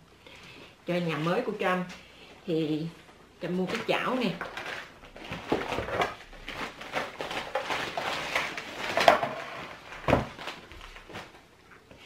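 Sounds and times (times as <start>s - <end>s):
plastic bag rustling: 3.6s - 11.6s.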